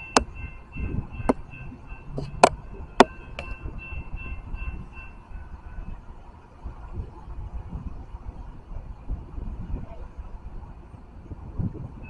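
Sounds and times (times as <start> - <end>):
crossing warning bell ringing: 0.0 - 6.1.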